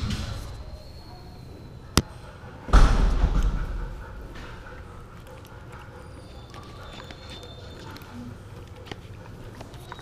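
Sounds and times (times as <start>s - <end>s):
puppy crunching kibble: 4.7s - 10.0s
teeth clicking on plastic bowl: 5.2s - 10.0s.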